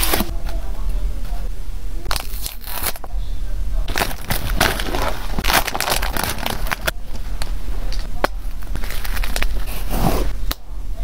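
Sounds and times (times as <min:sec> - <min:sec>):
bubble wrap crinkling: 0:02.1 - 0:03.1, 0:03.9 - 0:10.0.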